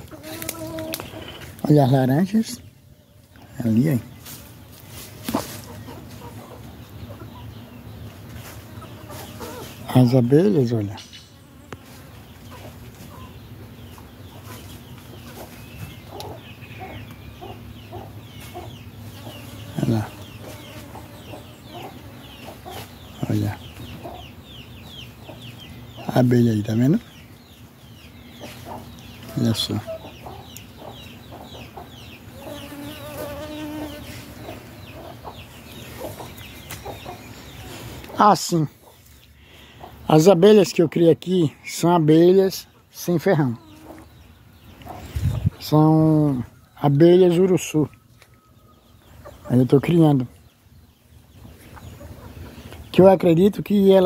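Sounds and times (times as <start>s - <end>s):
bee buzzing: 0.0s - 1.5s, 11.1s - 12.8s, 19.0s - 23.0s, 32.2s - 35.6s
bees buzzing: 0.0s - 1.8s, 4.0s - 23.2s, 30.6s - 38.2s
chickens clucking: 0.0s - 54.0s.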